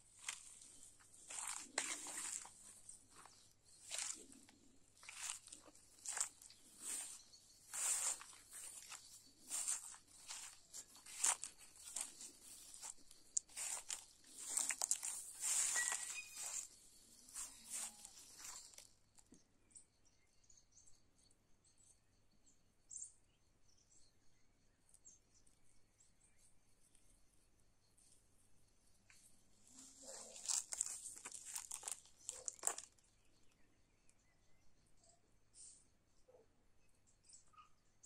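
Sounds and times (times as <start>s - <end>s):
footsteps crunching through grass: 0.0s - 18.9s, 29.7s - 33.0s.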